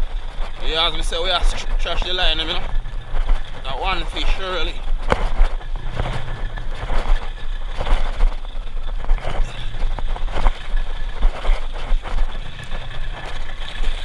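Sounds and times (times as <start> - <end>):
outboard motor running: 1.2 - 14.0.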